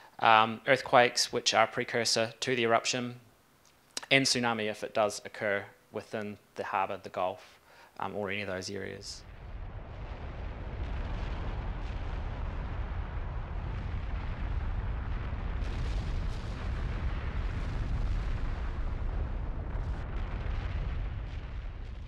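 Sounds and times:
eruption rumble and roar: 9.2s - 22.0s.

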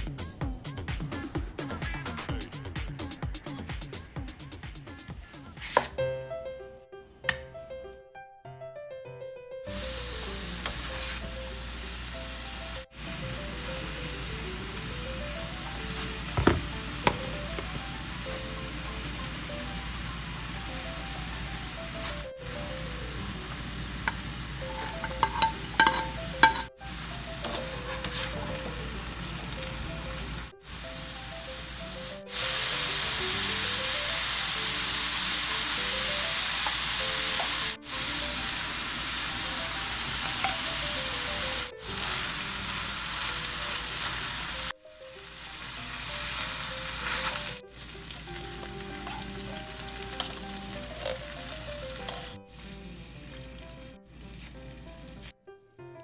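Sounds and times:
soft background music: 0.0s - 56.0s
meat and onion sizzling in a pan: 9.7s - 55.3s
spoon and spatula stirring: 24.1s - 26.7s, 27.3s - 28.8s, 48.5s - 51.4s, 52.0s - 52.4s.

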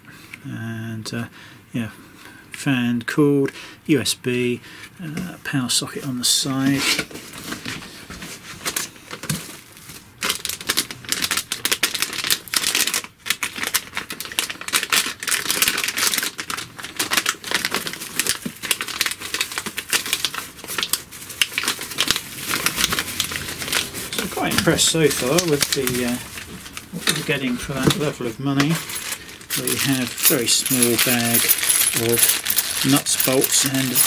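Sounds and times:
plastic packaging crinkling: 8.6s - 34.0s.

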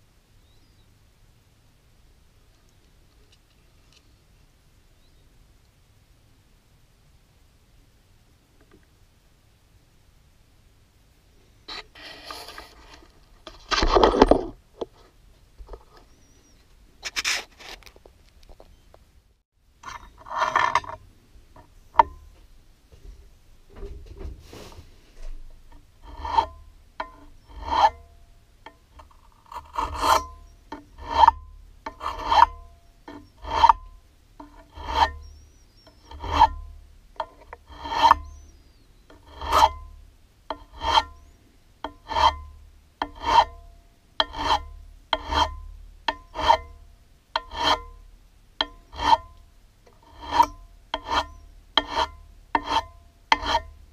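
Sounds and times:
hand file rasping on metal: 26.0s - 28.1s, 29.4s - 38.4s, 39.1s - 39.9s, 40.5s - 41.2s, 41.8s - 46.8s, 47.4s - 48.0s, 48.6s - 49.3s, 49.9s - 53.8s.

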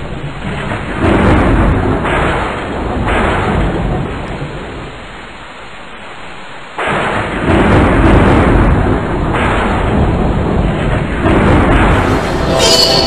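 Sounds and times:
rain: 0.0s - 13.0s
rolling thunder: 0.2s - 5.3s, 6.8s - 13.0s
loud thunder crash: 6.9s - 13.0s.

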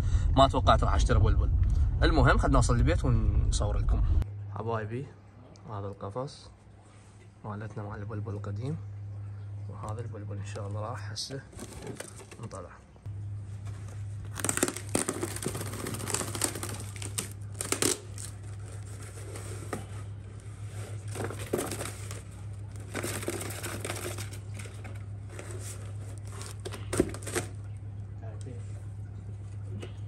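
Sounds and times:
steady low hum: 0.0s - 30.0s
cardboard box rustling and scraping: 11.5s - 12.5s, 13.6s - 27.5s.

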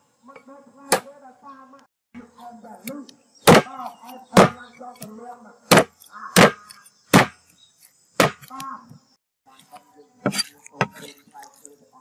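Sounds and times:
cleaver chopping on wooden board: 3.4s - 5.1s, 5.7s - 7.4s, 8.2s - 8.6s.

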